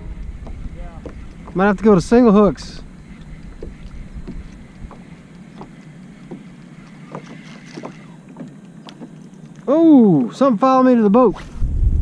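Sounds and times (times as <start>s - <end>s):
wind buffeting microphone: 0.0s - 8.2s, 11.3s - 12.0s
waves lapping against kayak hull: 0.0s - 10.8s.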